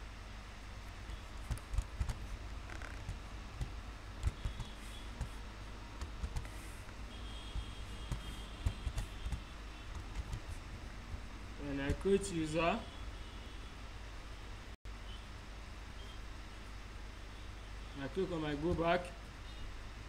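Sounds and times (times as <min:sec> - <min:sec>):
low background hum: 0:00.0 - 0:20.0
typing on computer keyboard: 0:01.4 - 0:05.4, 0:06.0 - 0:06.6, 0:07.5 - 0:10.6.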